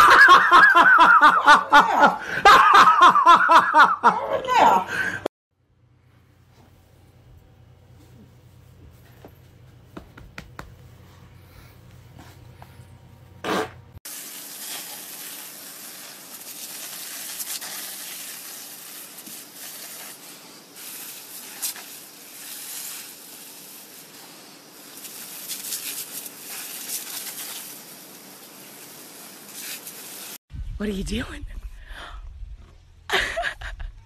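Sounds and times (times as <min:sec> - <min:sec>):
garden hose spraying water: 0:00.0 - 0:03.8, 0:14.0 - 0:30.4.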